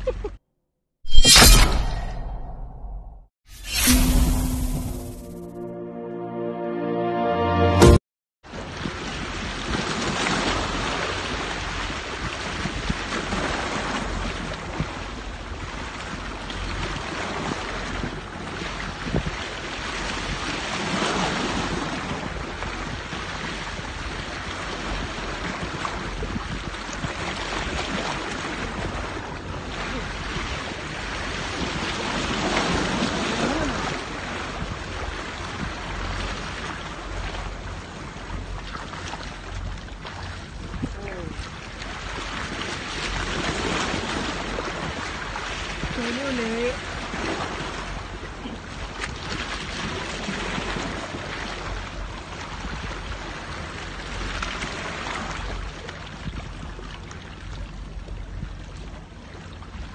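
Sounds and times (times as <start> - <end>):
wind on microphone: 18.8 - 19.5.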